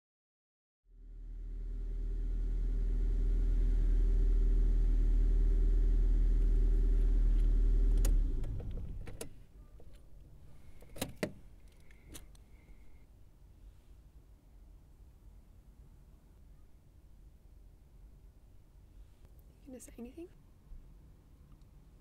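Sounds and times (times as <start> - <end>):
car engine rumble: 0.9 - 13.0.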